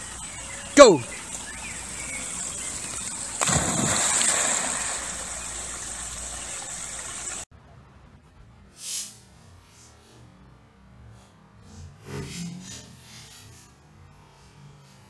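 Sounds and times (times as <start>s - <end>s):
dog splashing into pond: 2.8s - 7.4s
water splashing around swimming dog: 2.9s - 7.4s.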